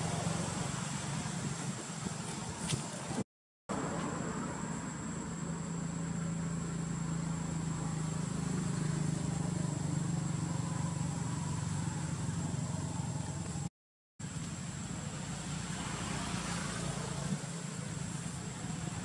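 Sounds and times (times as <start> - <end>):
engine droning: 0.0 - 19.0.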